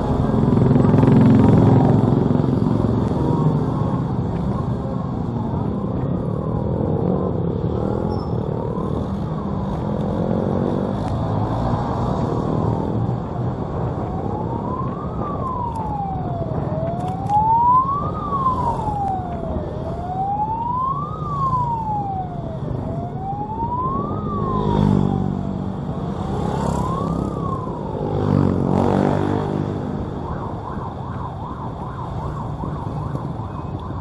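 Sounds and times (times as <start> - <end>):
motorcycle engines running: 0.0 - 16.1
road noise: 0.0 - 34.0
wailing siren: 0.0 - 34.0.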